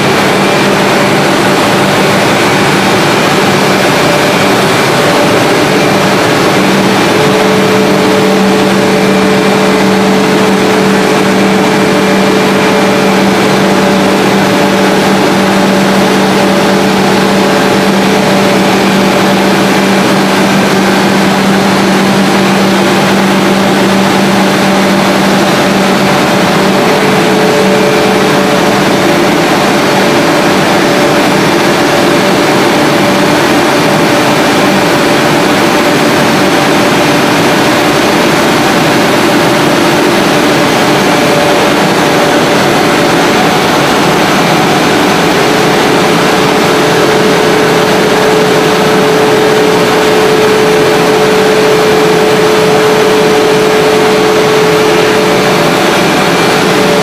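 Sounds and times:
steady machinery din: 0.0s - 57.0s.

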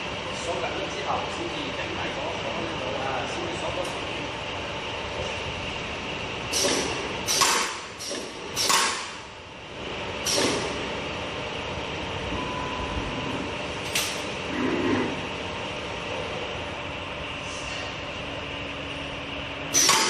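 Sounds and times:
machine hum: 0.0s - 20.0s
high whine: 11.0s - 20.0s.

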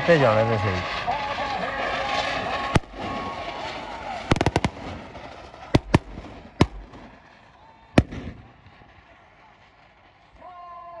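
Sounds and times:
sharp explosive bangs: 0.6s - 7.3s, 8.0s - 8.9s.

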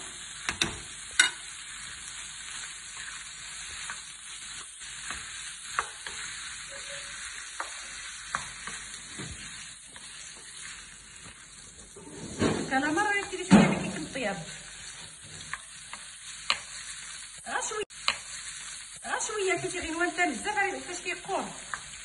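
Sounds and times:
squid sizzling in a frying pan: 0.0s - 22.0s
spoon knocking against pan: 0.5s - 1.4s.

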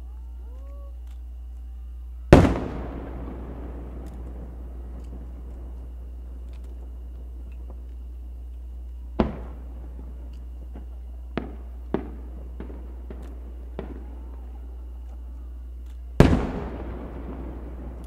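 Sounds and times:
firework shells bursting: 2.3s - 18.0s.

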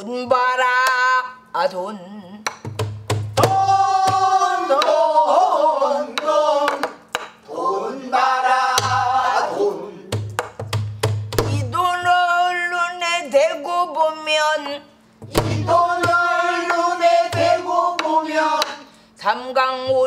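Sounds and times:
traditional vocal singing: 0.0s - 2.6s, 3.4s - 10.3s, 11.4s - 20.0s
palm thumps on drumhead: 10.1s - 11.6s.

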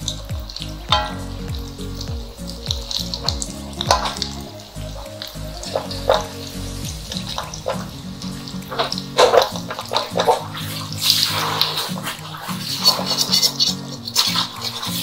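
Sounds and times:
background music: 0.0s - 15.0s
oil sizzling in a wok: 0.0s - 15.0s
metal spatula scraping a pan: 5.2s - 15.0s.

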